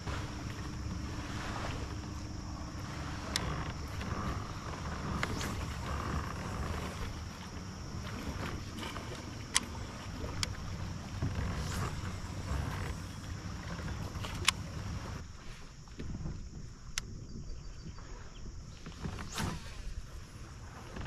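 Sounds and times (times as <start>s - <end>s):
wind and water rumble: 0.0s - 21.0s
sharp clicks on kayak: 3.2s - 4.3s, 8.4s - 10.6s, 14.2s - 14.7s, 16.9s - 17.1s.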